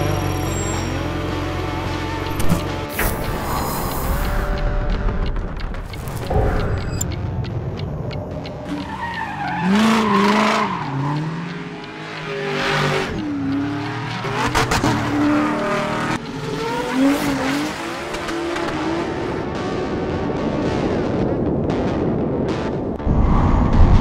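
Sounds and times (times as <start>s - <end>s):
car engine revving: 7.5s - 20.7s.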